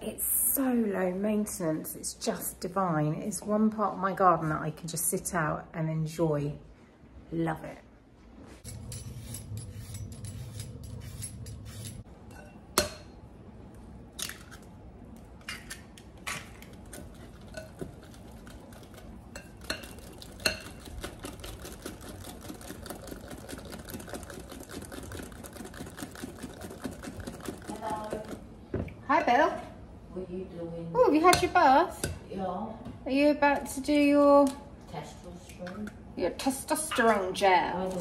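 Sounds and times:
peeler scraping potato: 8.6s - 12.0s
whisk beating in glass bowl: 16.9s - 28.4s.

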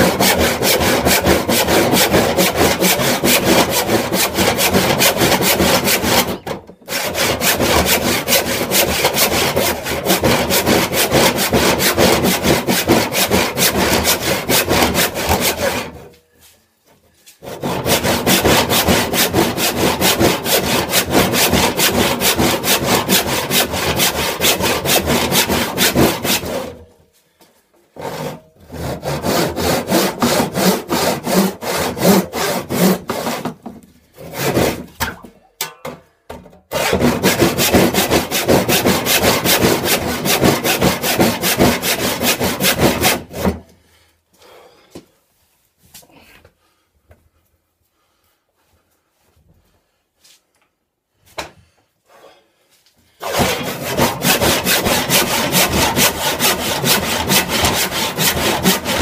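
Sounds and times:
hand saw cutting wood: 0.0s - 16.2s, 17.4s - 26.9s, 27.9s - 35.3s, 36.7s - 43.8s, 53.2s - 59.0s.

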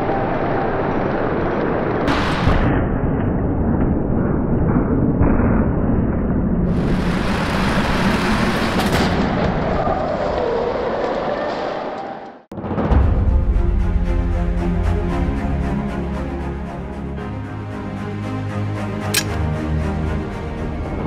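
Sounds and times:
continuous crash noise: 1.6s - 12.0s.

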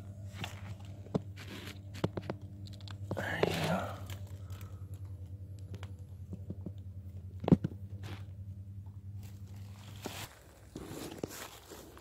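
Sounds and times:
steady low hum: 0.0s - 12.0s
faint twig crackles: 0.4s - 6.1s.

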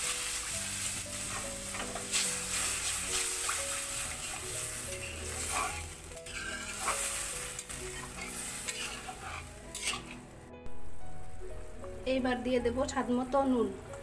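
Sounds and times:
spice paste sizzling in a pan: 0.0s - 11.0s
wooden spatula scraping a pan: 1.2s - 10.2s.

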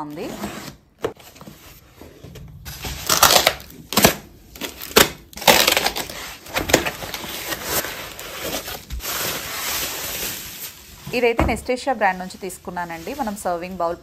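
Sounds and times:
packaging crinkling and tearing: 2.7s - 11.0s.

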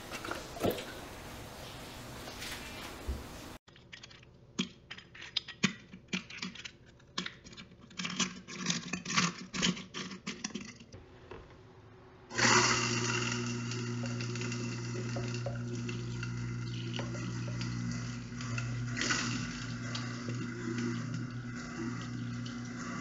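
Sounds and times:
garbage disposal running: 0.0s - 3.6s, 12.3s - 23.0s
eggshells crunching and clicking: 3.7s - 10.8s.

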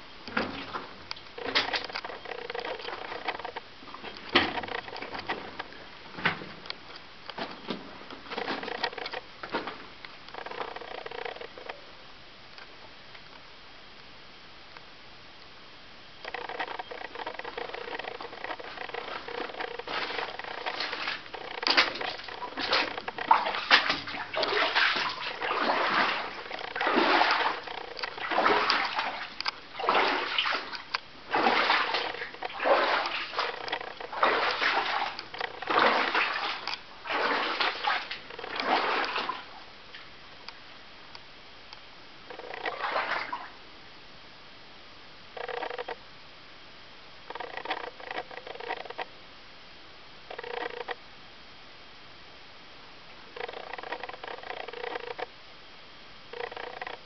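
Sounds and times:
footsteps splashing through water: 17.7s - 39.6s, 42.7s - 43.5s.

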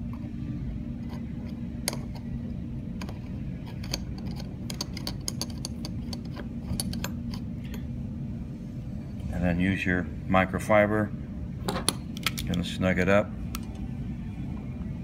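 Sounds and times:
metallic clicks and scrapes: 3.0s - 7.8s.

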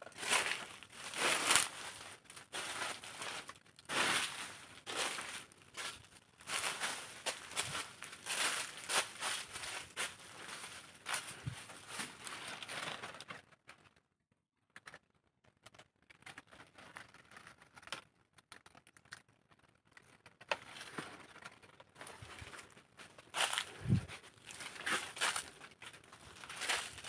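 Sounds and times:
dry leaves crackling and rustling: 0.0s - 13.3s, 20.8s - 27.0s.

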